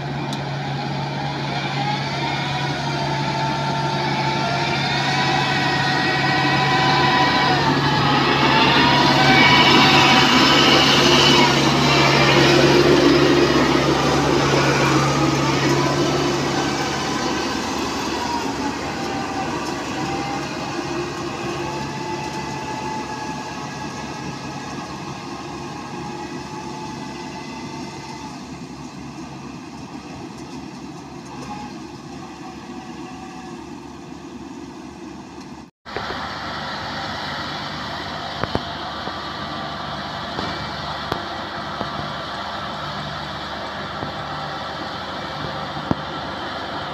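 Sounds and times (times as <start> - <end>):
crawler tracks rattling: 0.0 - 35.6
diesel engine running: 0.0 - 46.9.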